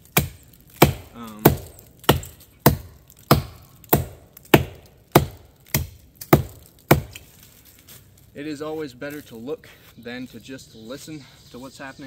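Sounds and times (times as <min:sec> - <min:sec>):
axe chopping wood: 0:00.0 - 0:07.3.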